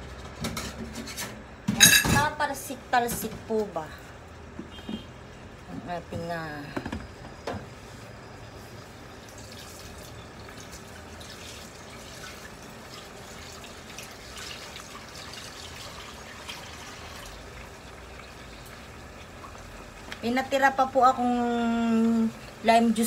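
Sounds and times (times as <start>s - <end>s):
meat and onions sizzling: 7.8s - 23.0s.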